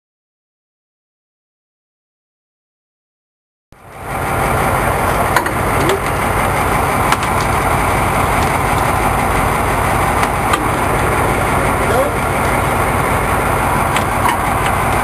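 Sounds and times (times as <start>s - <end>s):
boat engine idling: 3.8s - 15.0s.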